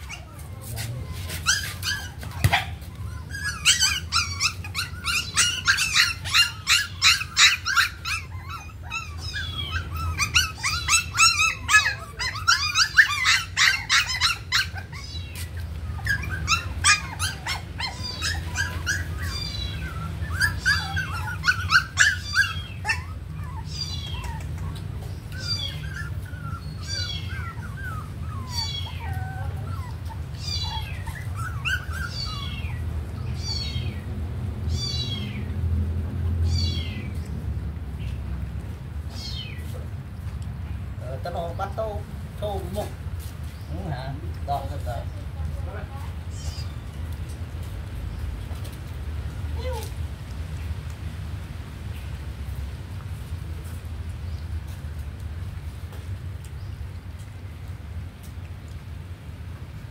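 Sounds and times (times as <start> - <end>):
puppies squealing and whimpering: 0.0 - 35.7, 36.3 - 37.3, 39.0 - 40.0, 46.2 - 47.1.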